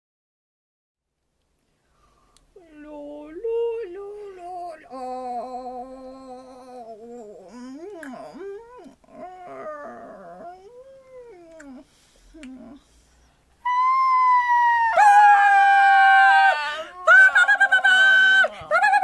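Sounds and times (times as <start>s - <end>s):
high-pitched puppet whining: 2.6s - 11.8s, 13.6s - 19.0s.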